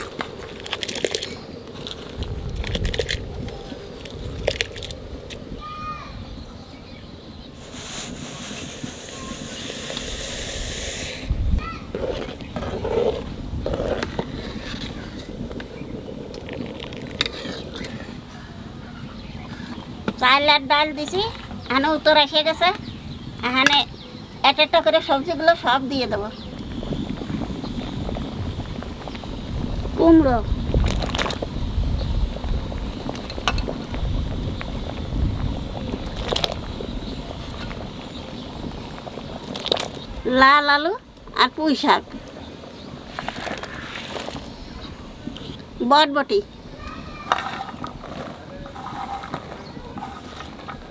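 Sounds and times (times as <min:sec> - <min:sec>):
ladle swishing through boiling water: 0:07.5 - 0:11.4, 0:12.0 - 0:18.4, 0:30.6 - 0:40.2, 0:42.1 - 0:45.6, 0:47.3 - 0:50.9.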